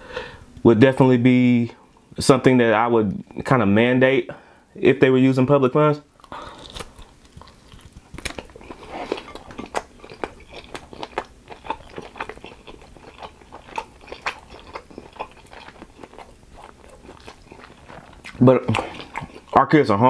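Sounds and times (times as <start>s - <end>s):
chewing chicken wing: 6.2s - 20.0s.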